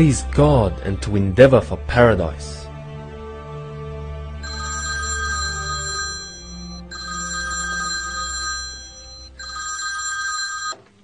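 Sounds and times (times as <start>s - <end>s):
soft background music: 0.0s - 11.0s
telephone ringing: 4.4s - 11.0s.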